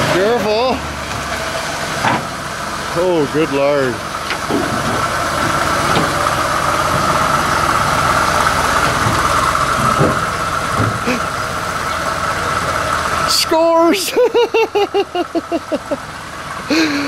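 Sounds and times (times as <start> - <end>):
truck engine idling: 0.0 - 17.0
low thumps: 8.8 - 11.2.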